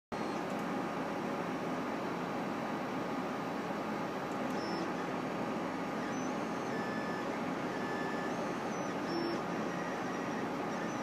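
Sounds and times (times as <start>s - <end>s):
stepper motors whining: 2.8s - 11.0s.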